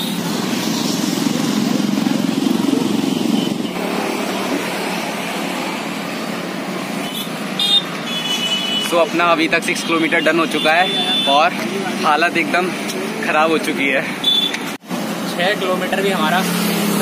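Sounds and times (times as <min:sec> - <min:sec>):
motorcycle engine passing: 0:00.0 - 0:06.6
road traffic noise: 0:00.0 - 0:17.0.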